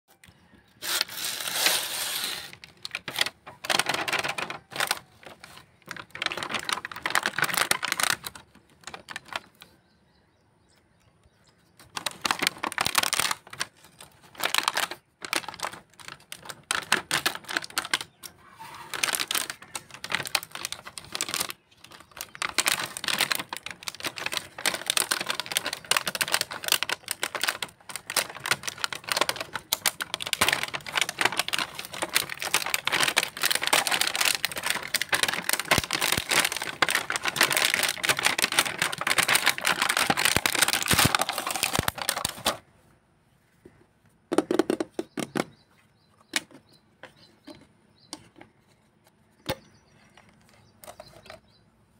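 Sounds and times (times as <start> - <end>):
plastic packaging crackling: 0.8 - 9.7, 11.8 - 42.6.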